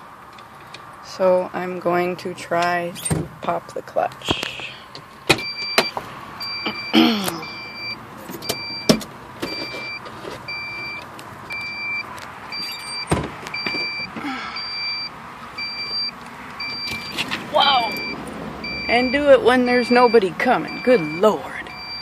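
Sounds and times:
car warning chime beeping: 5.4 - 22.0
knocks and thumps in car seat: 13.1 - 14.1.

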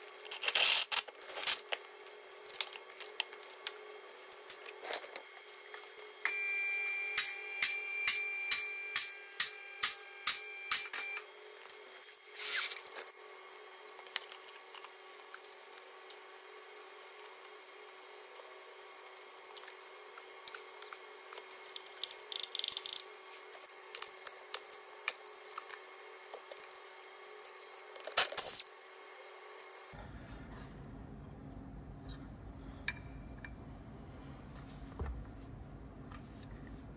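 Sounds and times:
faint steady hum: 0.0 - 36.9
tools and metal parts clinking: 28.0 - 28.6.

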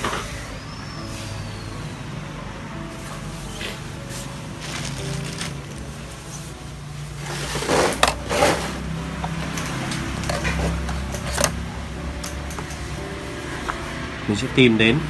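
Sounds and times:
cloth mat rustling: 3.6 - 8.9.

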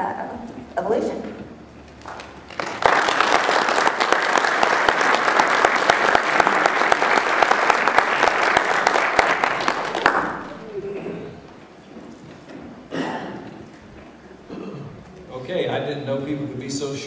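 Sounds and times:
audience applauding: 2.0 - 11.4.

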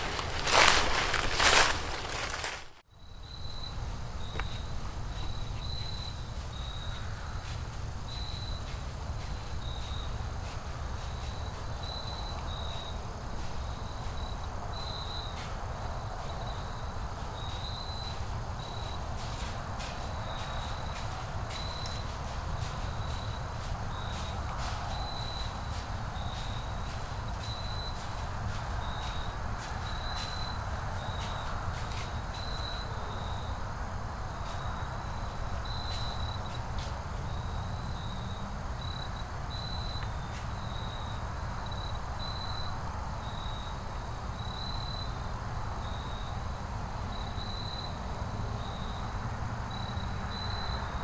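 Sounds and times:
insect chirping: 0.0 - 51.0
faint ticks: 20.9 - 23.3.

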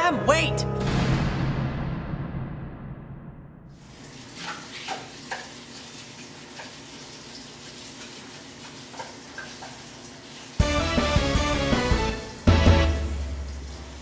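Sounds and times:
water running into sink: 3.8 - 14.0.

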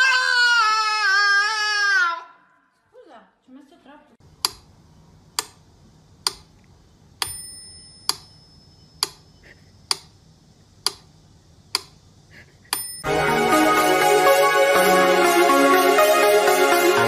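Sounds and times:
metronome bell ding: 7.2 - 8.9, 12.8 - 13.2.

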